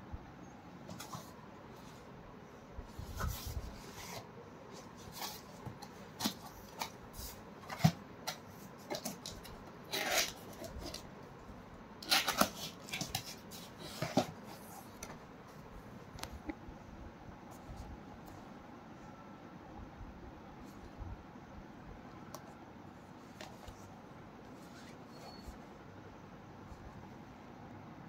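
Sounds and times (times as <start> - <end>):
cardboard scraping: 2.9 - 11.0
cardboard packaging rustling: 12.0 - 15.0.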